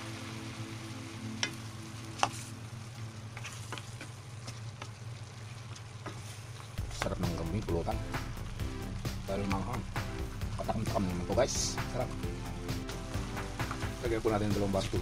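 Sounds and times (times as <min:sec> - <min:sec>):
meat and onions sizzling in a pan: 0:00.0 - 0:15.0
spatula scraping a pan: 0:03.4 - 0:04.6.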